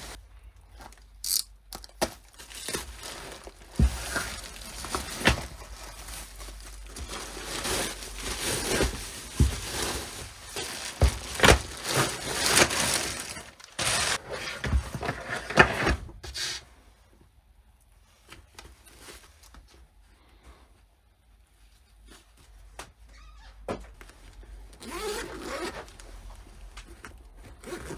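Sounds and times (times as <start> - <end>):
plastic bags rustling and crinkling: 0.0 - 15.6, 18.0 - 20.4, 23.9 - 27.9.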